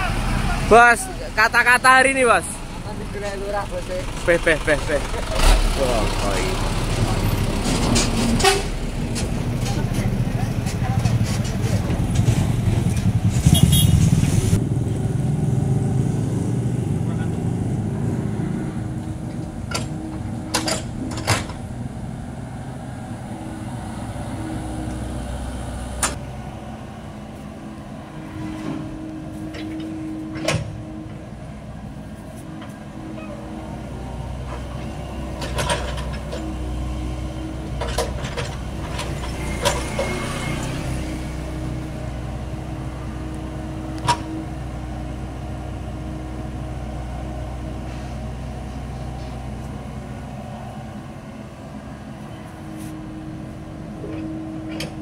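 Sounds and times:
excavator diesel engine running: 0.0s - 55.0s.

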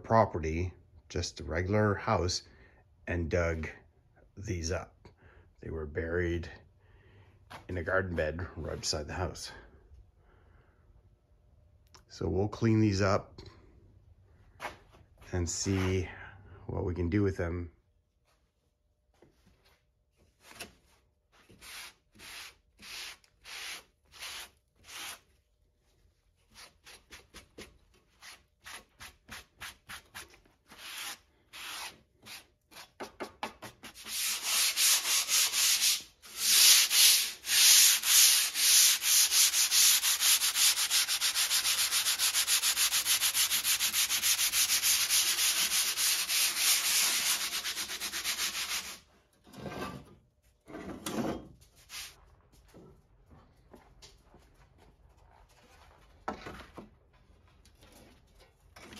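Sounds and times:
hand sanding saw blade: 21.5s - 25.2s, 26.5s - 49.1s.

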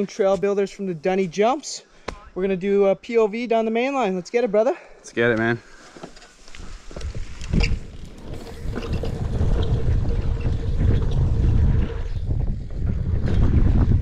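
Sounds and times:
bike tyres rolling over dirt: 6.1s - 14.0s
wind buffeting microphone: 6.6s - 14.0s.

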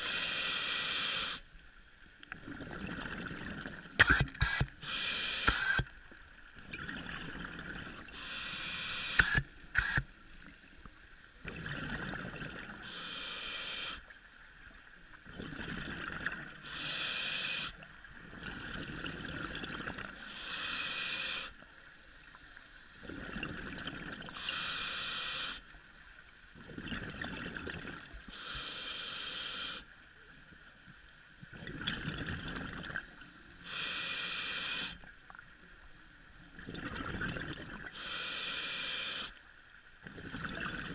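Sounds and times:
regulator hissing inhale: 0.0s - 1.5s, 4.0s - 5.9s, 8.1s - 10.1s, 12.8s - 14.1s, 16.6s - 17.8s, 20.2s - 21.6s, 24.3s - 25.7s, 28.3s - 29.9s, 33.6s - 35.1s, 37.9s - 39.4s
gurgle of exhaled bubbles: 2.4s - 4.4s, 6.6s - 8.2s, 11.4s - 12.8s, 15.2s - 16.6s, 18.3s - 20.2s, 23.0s - 24.4s, 26.6s - 28.1s, 31.5s - 33.2s, 36.5s - 37.9s, 40.0s - 40.9s.

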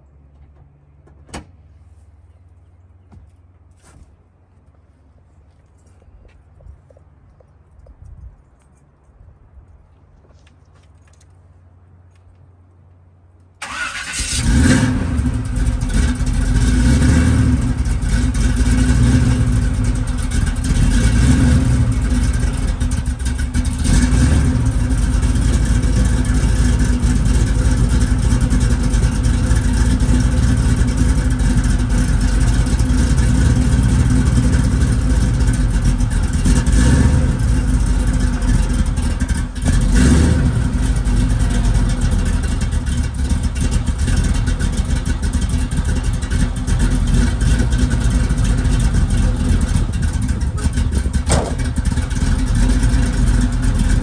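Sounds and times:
car engine starting and revving: 13.6s - 54.0s.

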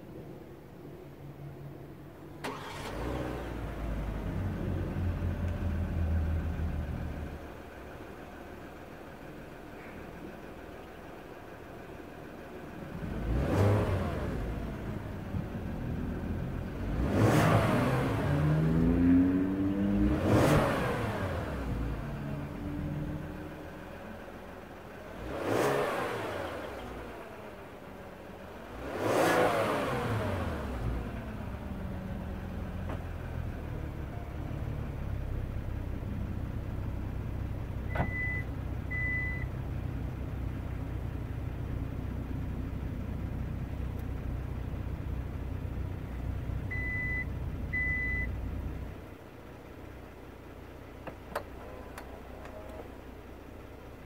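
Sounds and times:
car engine idling: 0.0s - 17.2s, 21.1s - 29.0s, 30.1s - 54.0s
car engine revving: 2.4s - 7.6s, 12.8s - 33.6s.

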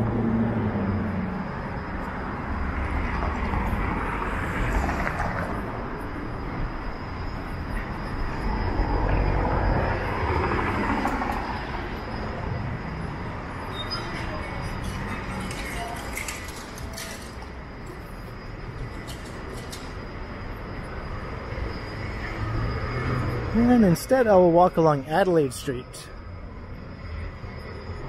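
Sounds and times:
street traffic: 0.0s - 28.0s.

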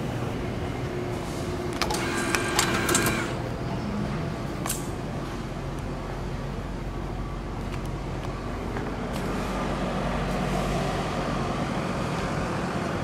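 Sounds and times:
ticket gate mechanical whirr: 1.2s - 3.6s
sharp mechanical click: 1.7s - 3.4s.

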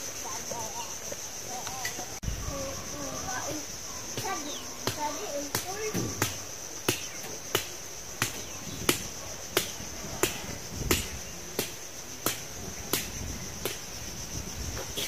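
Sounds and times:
high drone of insects: 0.0s - 15.0s
sharp knocks: 4.2s - 13.8s.

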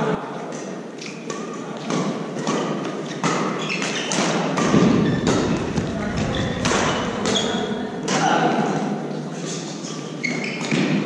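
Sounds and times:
racket hitting shuttlecock: 0.5s - 6.0s, 10.5s - 11.0s.

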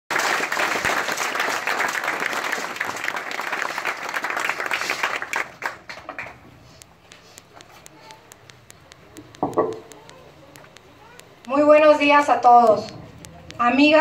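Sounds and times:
audience applauding: 0.1s - 6.4s.

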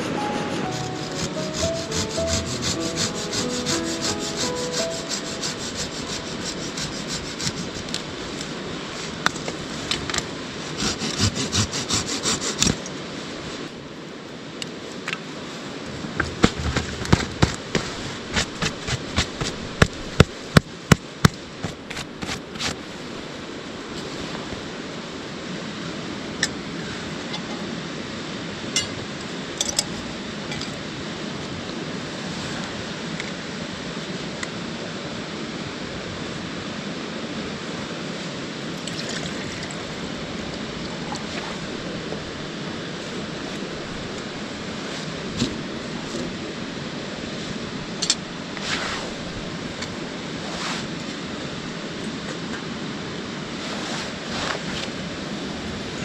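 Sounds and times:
river rushing: 0.0s - 10.9s
hand saw cutting stick: 0.1s - 8.1s, 10.6s - 12.8s, 16.2s - 22.8s.

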